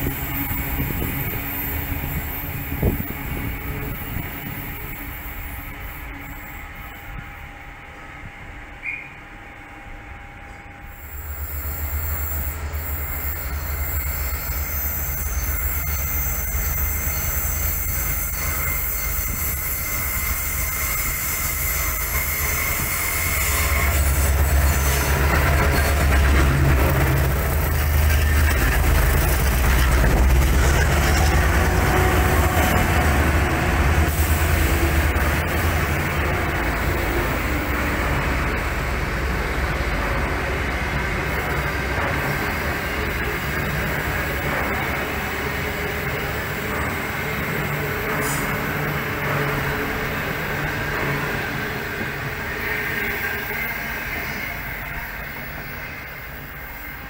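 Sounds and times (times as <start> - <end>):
train rumbling past: 0.0 - 57.0
wheel-on-rail noise: 10.4 - 57.0.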